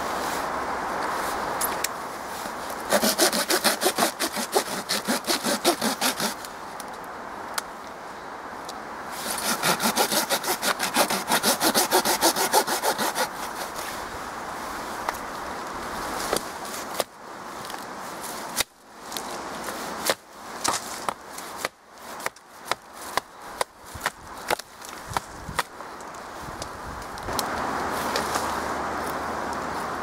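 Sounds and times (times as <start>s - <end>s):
saw cutting wood: 2.9s - 6.5s, 9.1s - 14.0s.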